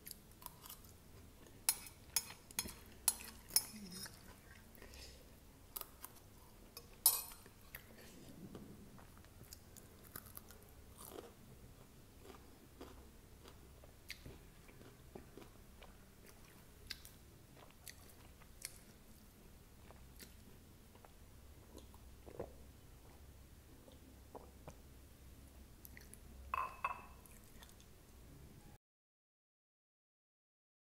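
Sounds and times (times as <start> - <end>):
close chewing: 9.0 - 19.0.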